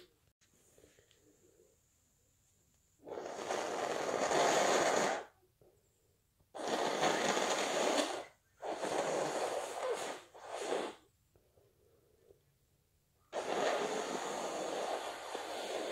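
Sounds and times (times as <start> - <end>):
person blowing nose: 3.0 - 5.4, 6.6 - 11.1, 13.3 - 15.9.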